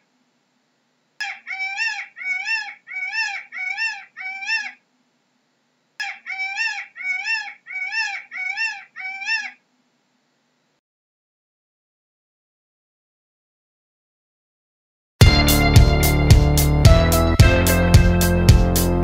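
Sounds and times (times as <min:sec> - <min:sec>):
peacock calling: 0:01.2 - 0:04.8, 0:06.0 - 0:09.6.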